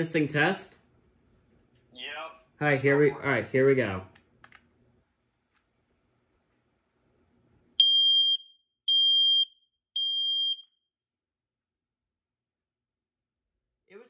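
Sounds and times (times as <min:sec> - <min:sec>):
smoke alarm beeps: 0:07.8 - 0:10.8.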